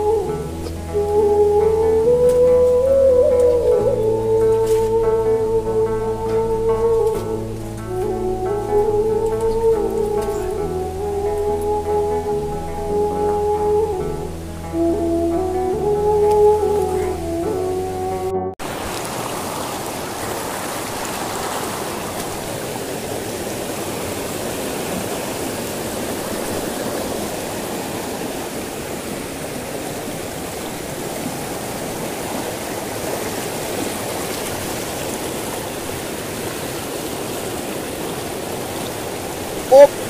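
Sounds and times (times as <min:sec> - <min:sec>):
river rushing over rocks: 0:18.6 - 0:40.0.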